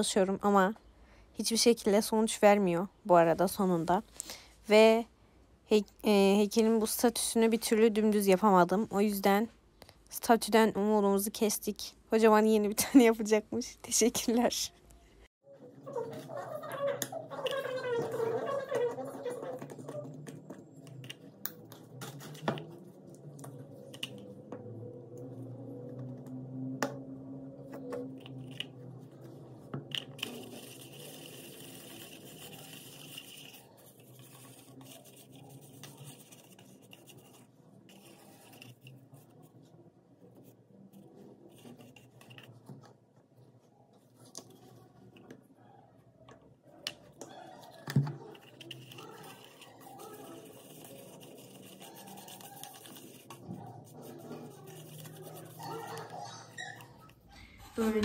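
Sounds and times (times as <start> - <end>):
paintbrush scraping paint in cup: 27.8 - 42.8, 47.4 - 58.0.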